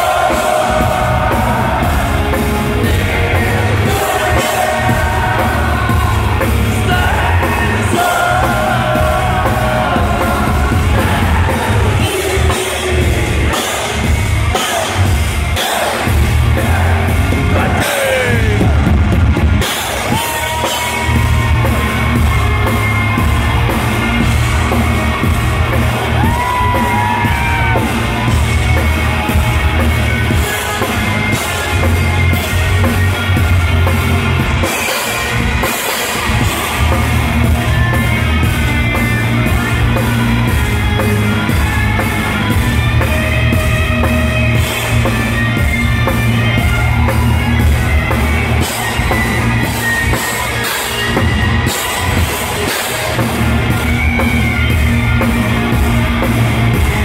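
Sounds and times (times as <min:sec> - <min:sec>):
crowd yelling: 0:00.0 - 0:57.0
heavy metal band playing live: 0:00.0 - 0:57.0.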